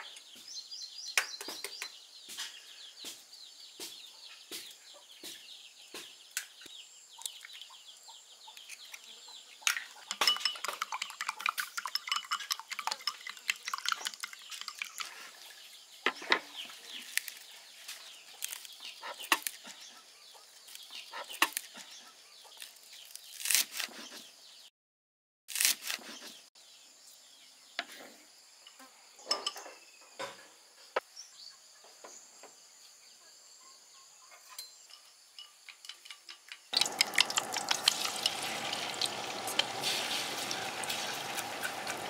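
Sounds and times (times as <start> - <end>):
eggs cracking: 9.7 - 15.4, 36.7 - 42.0
chopsticks beating eggs in glass: 10.0 - 15.4, 36.8 - 42.0
chickens clucking: 36.8 - 42.0.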